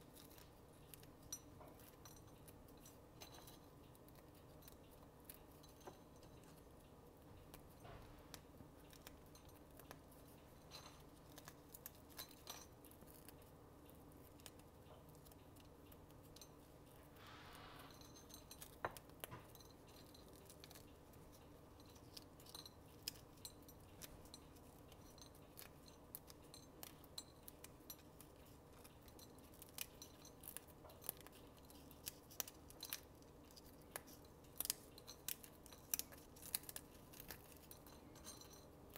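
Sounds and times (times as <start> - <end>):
low steady hum: 0.0 - 38.9
bacon snapping and crackling: 29.2 - 37.6.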